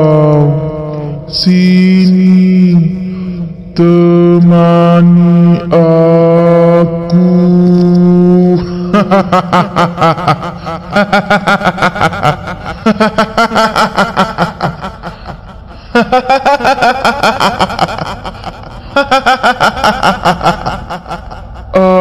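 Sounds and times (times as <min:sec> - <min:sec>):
high rapid cackling laugh: 0:08.9 - 0:22.0.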